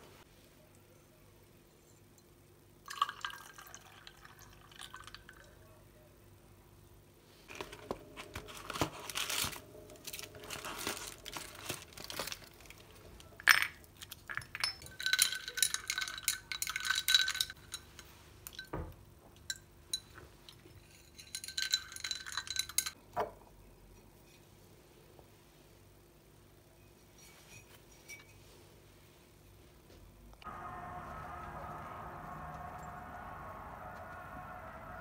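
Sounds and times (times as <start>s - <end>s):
stirrer clinking in ceramic cup: 14.4s - 18.7s, 20.8s - 22.9s.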